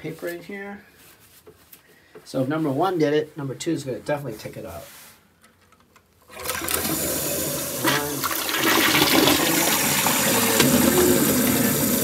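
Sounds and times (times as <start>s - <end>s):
toilet flushing: 6.3s - 12.0s.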